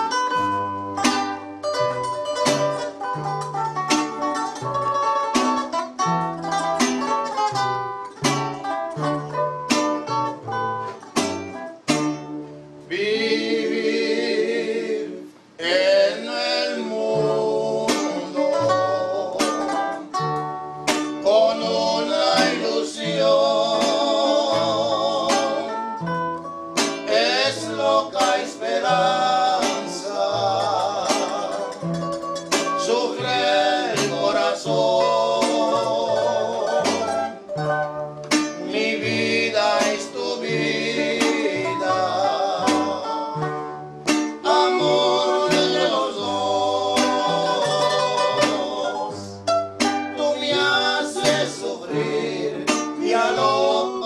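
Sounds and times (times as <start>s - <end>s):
plucked bass line: 0.0s - 15.0s, 16.3s - 54.0s
strummed guitars: 0.0s - 54.0s
man singing with vibrato: 12.9s - 20.2s, 21.1s - 26.1s, 27.0s - 37.5s, 38.6s - 43.6s, 44.4s - 49.4s, 50.0s - 54.0s.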